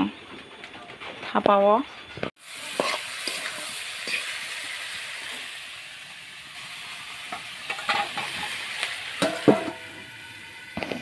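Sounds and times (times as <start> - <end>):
oil sizzling in a wok: 2.4 - 11.0.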